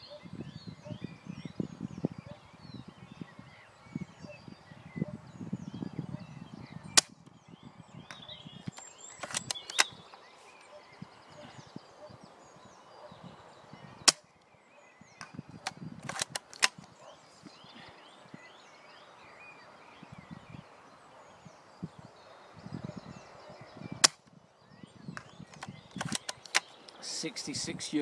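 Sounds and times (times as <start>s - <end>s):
airsoft rifle shot crack: 24.0s - 24.2s.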